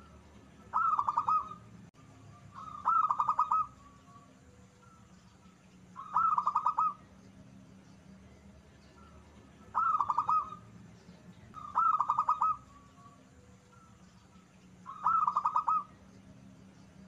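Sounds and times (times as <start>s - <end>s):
dove cooing: 0.0s - 7.2s, 9.0s - 10.8s, 11.5s - 16.1s.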